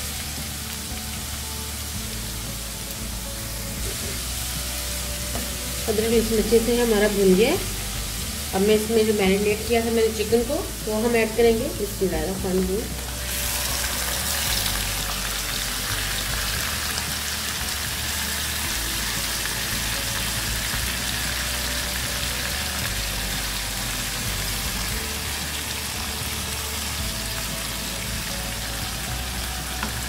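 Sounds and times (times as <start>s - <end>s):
chicken sizzling in hot oil: 0.0s - 30.0s.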